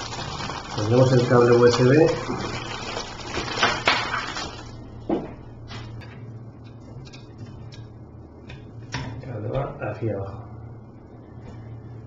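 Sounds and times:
plastic wrapping rustling: 0:00.0 - 0:04.8.

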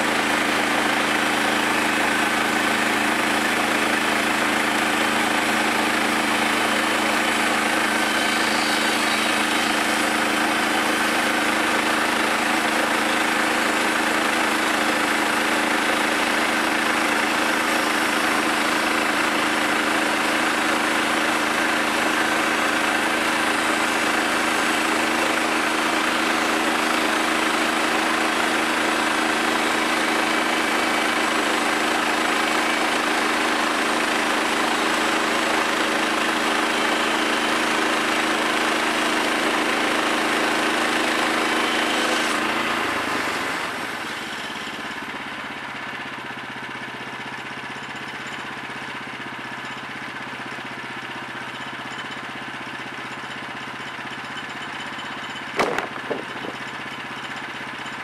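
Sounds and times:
band blade sawing log: 0:00.0 - 0:44.9, 0:55.6 - 0:56.8
gas engine running: 0:00.0 - 0:47.6, 0:55.3 - 0:57.8.

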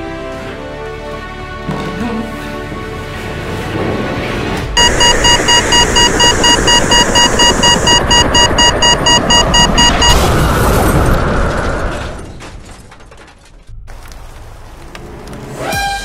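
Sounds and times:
heavy rumbling noise: 0:03.7 - 0:12.7
rapidly pulsing electronic alarm: 0:04.8 - 0:10.2.

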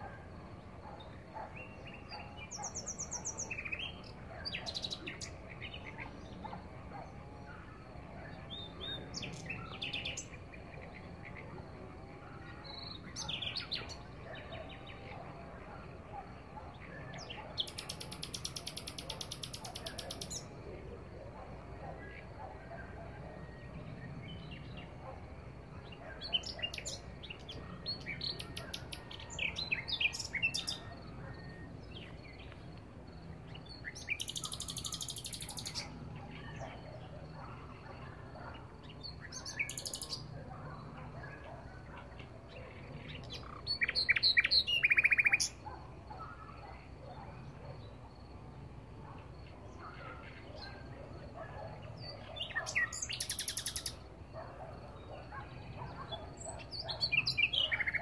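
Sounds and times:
nightingale singing: 0:00.8 - 0:11.5, 0:12.4 - 0:15.2, 0:16.1 - 0:20.6, 0:25.8 - 0:32.8, 0:33.4 - 0:40.3, 0:41.2 - 0:47.2, 0:51.6 - 0:58.0.

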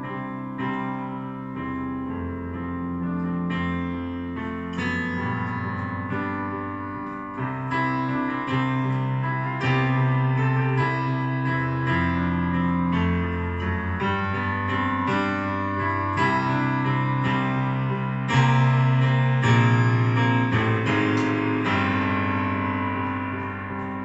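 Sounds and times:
electronic keyboard piano chords: 0:00.0 - 0:24.0.

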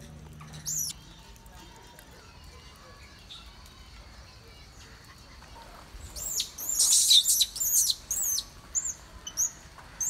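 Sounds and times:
small birds chirping: 0:00.1 - 0:03.8, 0:04.6 - 0:10.0.

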